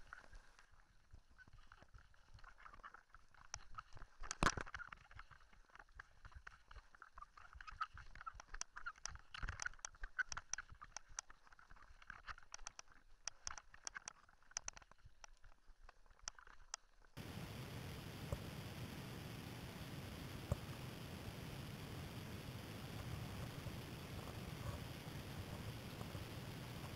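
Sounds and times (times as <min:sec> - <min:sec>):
bike tyres on loose gravel: 0:17.2 - 0:26.9.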